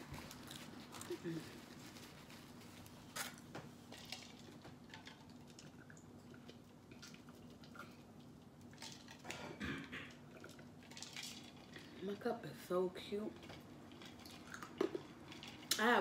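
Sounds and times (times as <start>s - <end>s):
eating and sipping mouth sounds: 5.0s - 12.0s, 13.4s - 15.8s.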